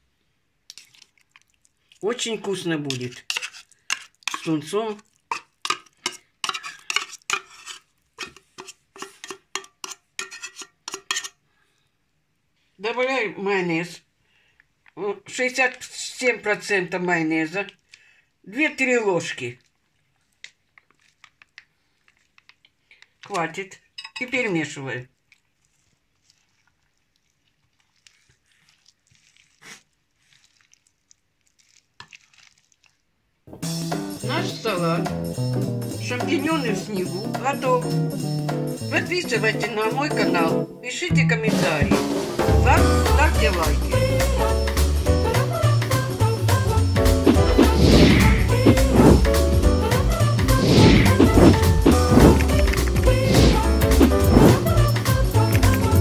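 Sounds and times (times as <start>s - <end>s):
spoon stirring salad in glass bowl: 0.7s - 11.4s, 19.6s - 24.5s, 25.2s - 33.1s
metal spoon scraping tin can: 2.4s - 11.4s, 50.5s - 54.8s.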